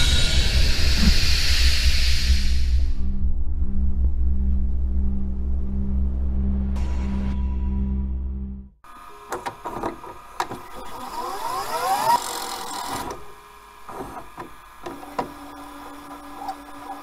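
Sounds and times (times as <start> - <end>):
rising sweep with hiss: 0.0 - 3.3
steady low hum: 0.0 - 9.3.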